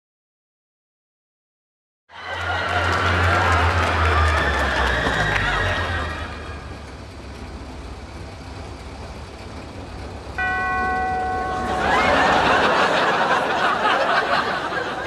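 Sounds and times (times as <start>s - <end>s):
audience laughing: 2.1s - 7.2s, 11.4s - 15.0s
car engine idling: 2.4s - 15.0s.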